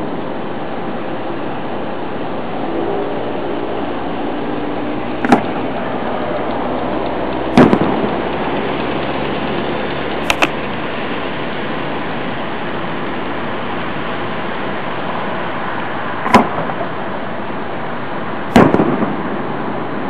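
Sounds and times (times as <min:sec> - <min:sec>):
steady rushing noise: 0:00.0 - 0:20.0
firework bangs: 0:05.1 - 0:06.2, 0:07.3 - 0:09.1, 0:16.2 - 0:17.3, 0:18.4 - 0:20.0.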